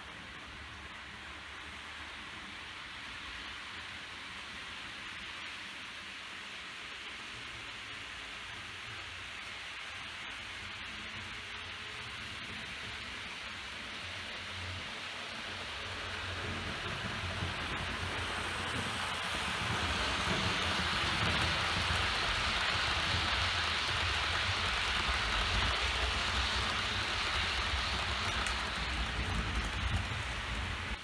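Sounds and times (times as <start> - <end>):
model train wheels on rails: 0.0 - 31.0.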